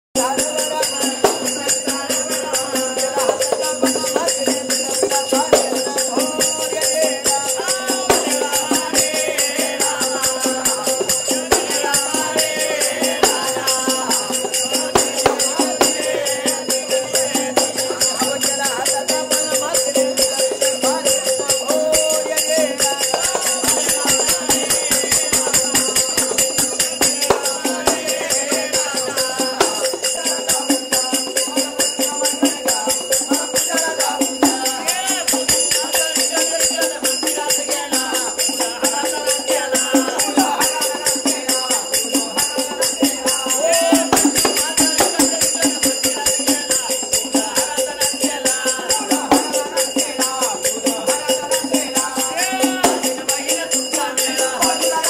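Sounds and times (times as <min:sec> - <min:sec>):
drum beating: 0:00.2 - 0:55.0
men singing together: 0:00.2 - 0:55.0
small hand cymbals: 0:00.2 - 0:55.0.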